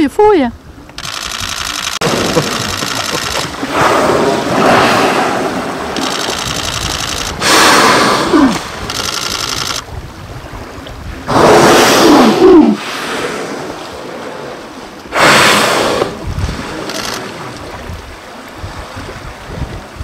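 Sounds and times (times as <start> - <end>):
fast mechanical rattle: 1.0 - 3.5
whale blowing: 2.0 - 6.6, 7.3 - 9.0, 11.2 - 17.6.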